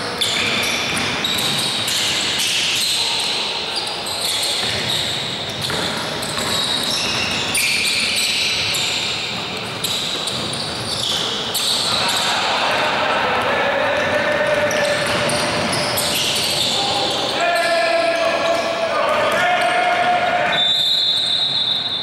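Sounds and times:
sneakers squeaking on wooden court: 0.0s - 12.3s, 14.0s - 22.0s
basketball bouncing on floor: 5.5s - 7.3s.

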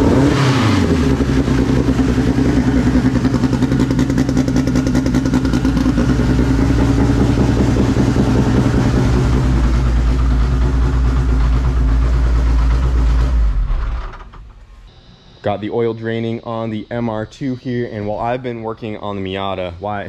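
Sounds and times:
car engine idling loudly: 0.0s - 14.4s.

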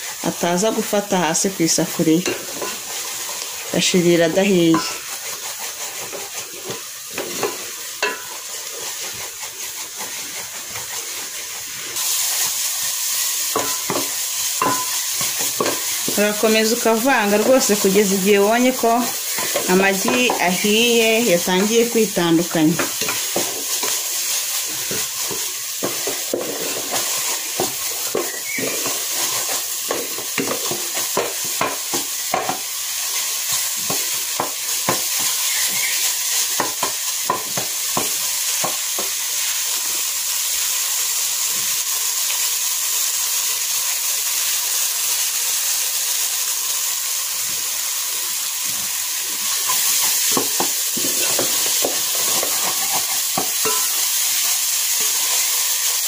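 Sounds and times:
eggs sizzling in a pot: 0.0s - 56.0s
wooden spoon scraping a pot: 0.1s - 39.2s, 49.4s - 54.0s.

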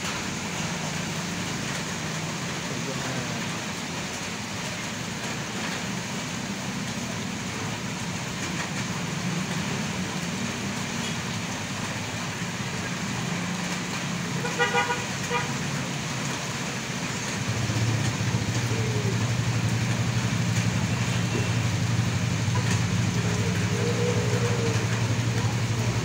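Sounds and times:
rain and tyres on wet road: 0.0s - 26.0s
passing car engines: 5.9s - 26.0s.

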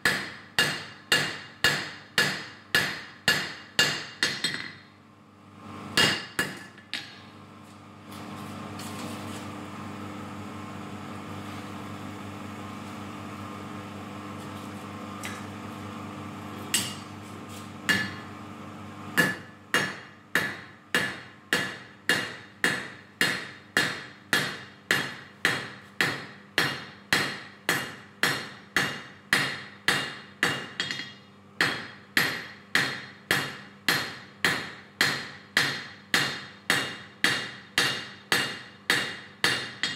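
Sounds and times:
hammer striking steel on anvil: 0.0s - 4.8s, 6.0s - 7.2s, 16.7s - 17.1s, 17.9s - 18.3s, 19.2s - 39.9s
steady hum: 0.0s - 39.9s.

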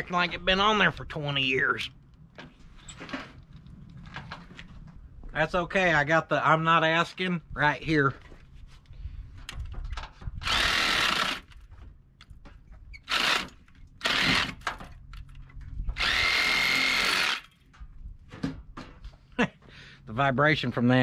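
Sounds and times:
impact wrench whining and hammering: 9.5s - 17.8s.

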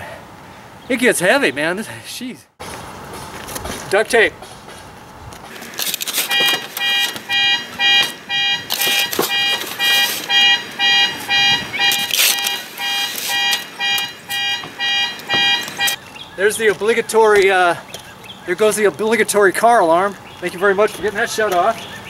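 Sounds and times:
car alarm beeping: 6.2s - 16.0s.

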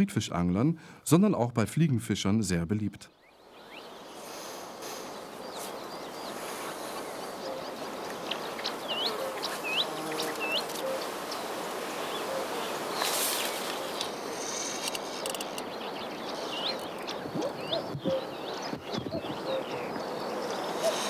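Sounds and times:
steady background hiss: 0.2s - 17.3s
birds calling: 3.0s - 21.0s
rustling: 8.2s - 15.6s.

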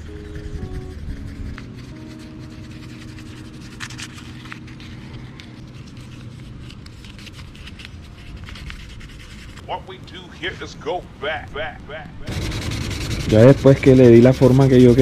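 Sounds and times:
sandpaper rubbing: 0.0s - 9.8s, 12.2s - 15.0s.

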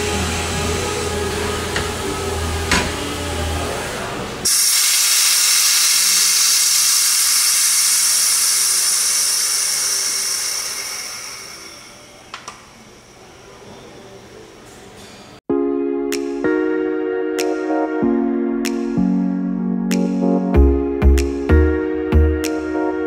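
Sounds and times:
compressed air hissing: 4.4s - 12.3s.

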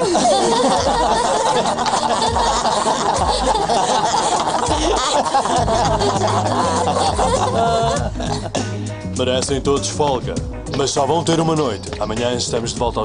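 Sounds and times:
young men laughing: 0.0s - 9.0s.

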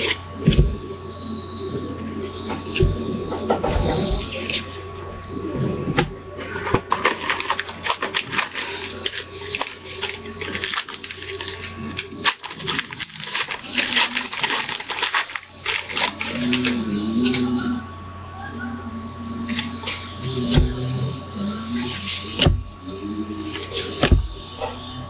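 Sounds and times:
wrapper tearing and crinkling: 6.9s - 16.8s.

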